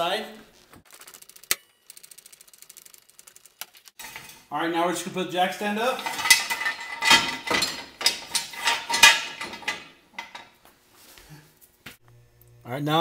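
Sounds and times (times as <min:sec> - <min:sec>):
metal clanks and ratchet clicks: 0:06.0 - 0:10.5.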